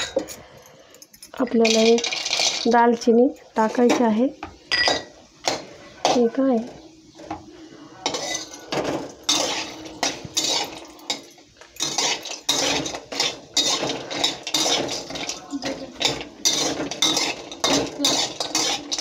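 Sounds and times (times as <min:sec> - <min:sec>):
metal spatula scraping a metal pan: 0:08.0 - 0:19.0.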